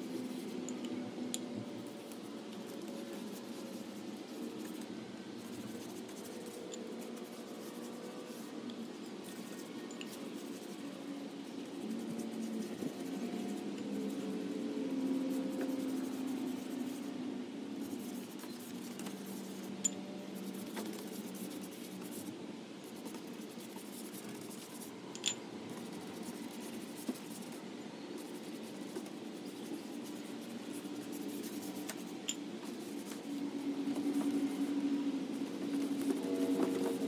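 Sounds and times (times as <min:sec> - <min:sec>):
paintbrush scrubbing on wood: 0:00.0 - 0:00.6, 0:05.4 - 0:17.1, 0:17.8 - 0:19.7, 0:20.4 - 0:24.9, 0:28.2 - 0:34.7, 0:35.3 - 0:37.0.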